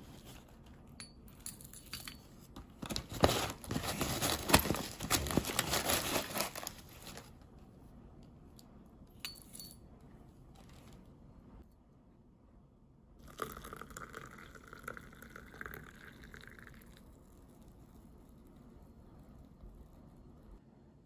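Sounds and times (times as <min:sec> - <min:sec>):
paper bag crinkling: 0:02.8 - 0:07.4.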